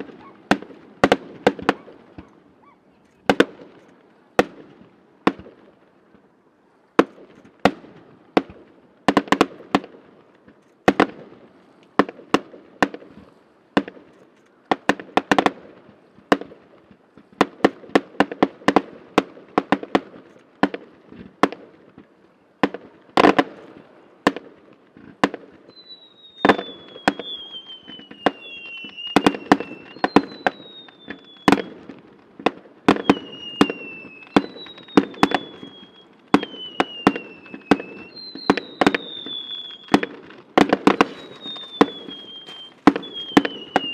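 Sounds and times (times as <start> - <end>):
high falling firework whistles: 25.6 - 31.9, 32.9 - 43.9
firework shell bursts: 34.3 - 43.9.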